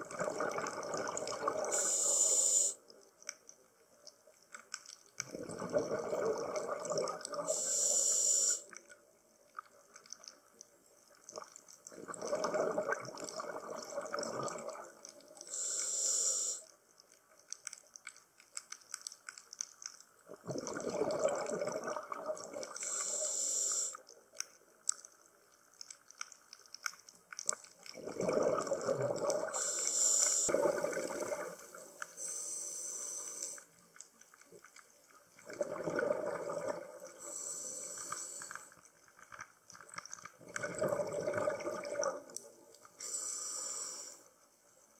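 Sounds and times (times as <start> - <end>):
exhaled bubbles gurgling: 0.0 - 2.7, 5.2 - 7.8, 11.2 - 15.6, 20.2 - 23.2, 27.6 - 32.0, 35.3 - 38.8, 40.2 - 42.9
regulator inhale hiss: 1.7 - 2.8, 7.4 - 8.8, 15.4 - 16.7, 22.7 - 24.0, 29.5 - 30.8, 31.6 - 33.8, 37.2 - 38.8, 43.0 - 44.4.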